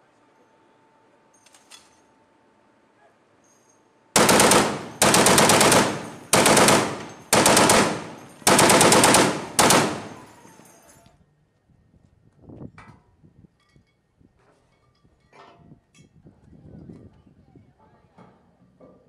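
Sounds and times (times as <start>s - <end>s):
machine gun bursts: 4.2s - 10.7s.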